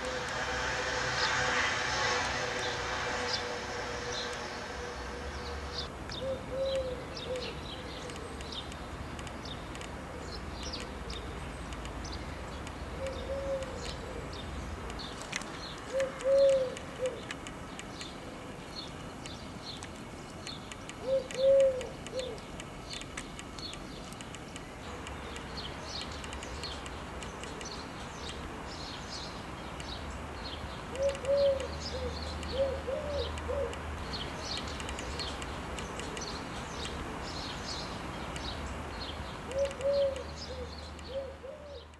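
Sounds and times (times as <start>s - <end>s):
small birds chirping: 5.4s - 41.9s
doves cooing: 15.9s - 17.3s, 21.0s - 22.4s, 30.9s - 33.8s, 39.5s - 41.8s.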